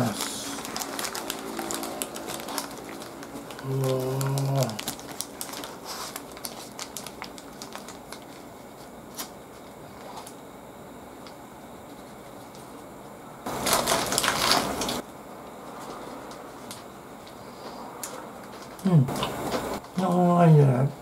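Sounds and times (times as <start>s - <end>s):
lettuce leaves rustling: 0.0s - 8.5s, 13.5s - 15.0s
paper wrapper crinkling: 0.0s - 10.3s, 13.5s - 15.0s.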